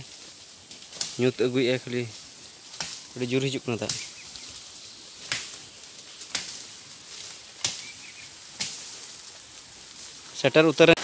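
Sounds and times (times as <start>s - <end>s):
outdoor hiss: 0.0s - 11.0s
sharp snaps: 2.7s - 3.1s, 3.8s - 6.6s, 7.2s - 8.0s, 8.6s - 9.0s.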